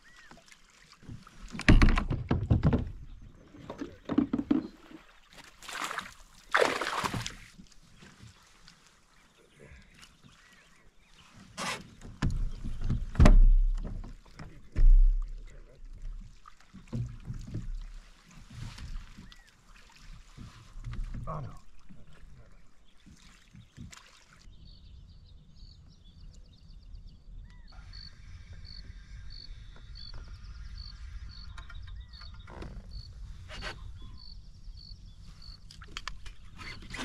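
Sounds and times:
knocks and thumps of gear: 0:01.6 - 0:03.0.

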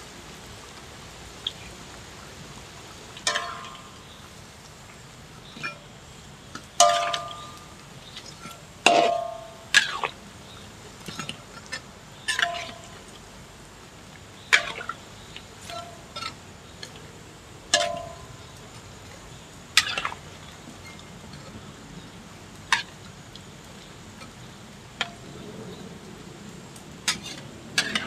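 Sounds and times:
oil bubbling and hissing: 0:00.0 - 0:28.0.

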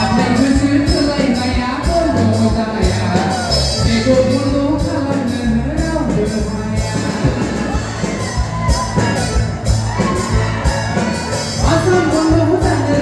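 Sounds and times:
man singing into microphone: 0:00.0 - 0:08.1, 0:11.6 - 0:13.0
backing track with heavy bass: 0:00.0 - 0:13.0.

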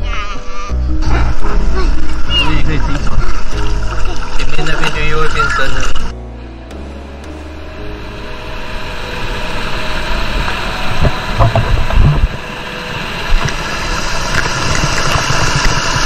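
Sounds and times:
low thumps: 0:00.9 - 0:04.3
water rushing over rocks: 0:01.3 - 0:06.1, 0:08.0 - 0:16.0.

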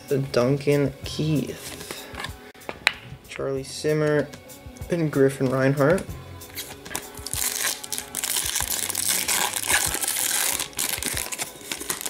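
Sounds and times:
wrapper crinkling: 0:06.6 - 0:12.0.

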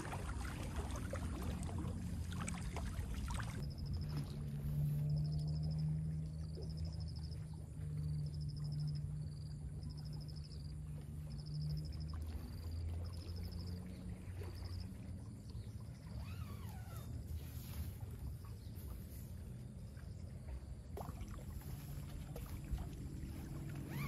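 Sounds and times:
distant motorboat engine drone: 0:00.0 - 0:24.0
high insect trills: 0:21.1 - 0:24.0.

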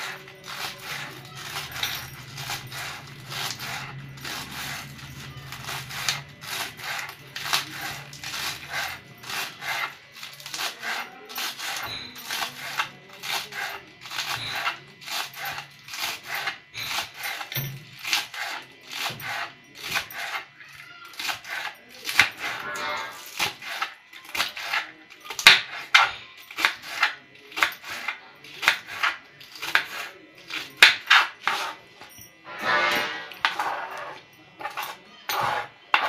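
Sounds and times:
knife chopping on plastic board: 0:21.1 - 0:22.4, 0:25.4 - 0:31.7.

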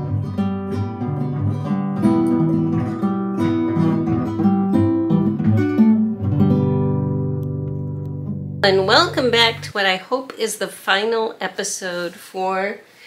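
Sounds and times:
acoustic guitar tune: 0:00.0 - 0:09.9.

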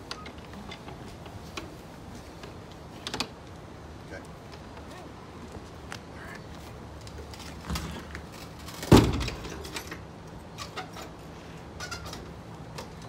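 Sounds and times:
tailgate thump: 0:08.8 - 0:09.5.

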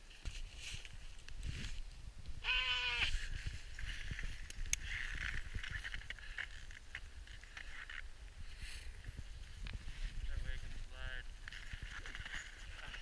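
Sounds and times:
camera handling rumble: 0:03.0 - 0:08.1.

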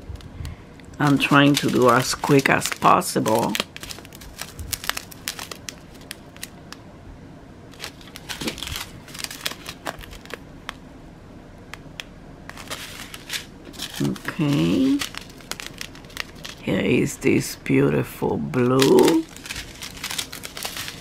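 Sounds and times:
plastic bags crinkling: 0:01.0 - 0:06.6, 0:07.7 - 0:10.8, 0:12.5 - 0:16.9, 0:18.6 - 0:21.0
sharp crackles: 0:12.6 - 0:16.7, 0:18.8 - 0:21.0.

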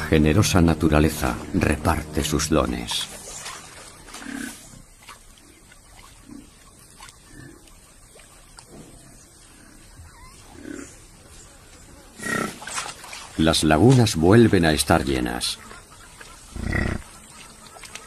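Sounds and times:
buffalo grunting: 0:00.0 - 0:04.8, 0:08.9 - 0:11.1, 0:12.2 - 0:12.8, 0:15.6 - 0:17.2.

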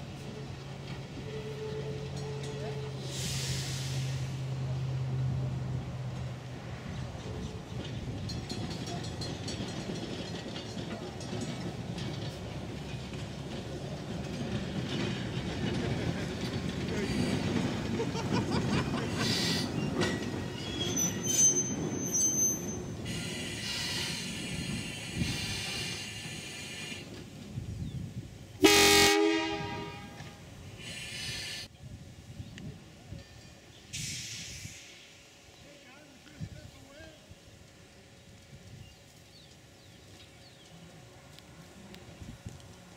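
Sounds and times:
train rumbling over tracks: 0:00.0 - 0:42.9
wheels squealing: 0:14.4 - 0:27.1.

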